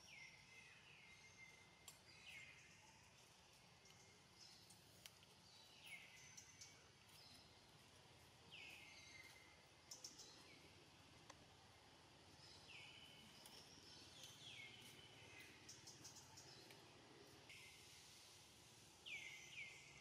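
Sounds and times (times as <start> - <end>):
faint forest ambience: 0.0 - 20.0
faint clicks: 3.8 - 5.4, 11.2 - 11.4.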